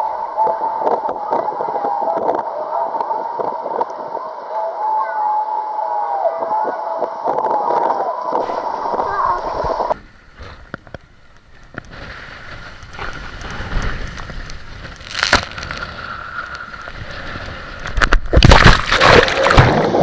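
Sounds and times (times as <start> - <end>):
rushing water and air noise: 0.0 - 20.0
tube splashing into pool: 18.3 - 20.0.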